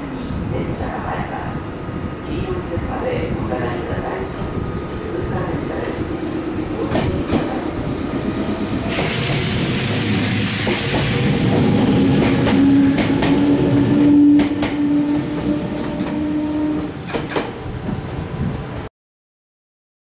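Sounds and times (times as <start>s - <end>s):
air hiss: 8.4s - 11.4s.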